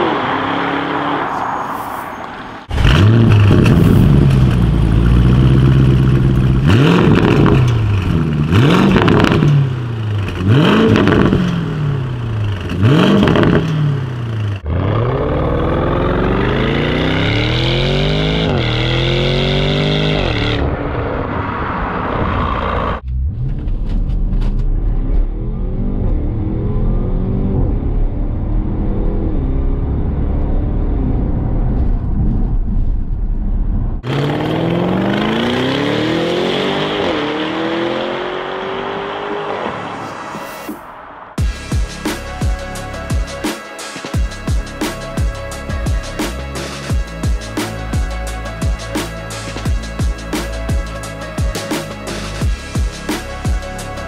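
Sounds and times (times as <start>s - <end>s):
car engine revving and accelerating: 0.0s - 1.7s, 2.6s - 31.8s, 34.0s - 40.4s.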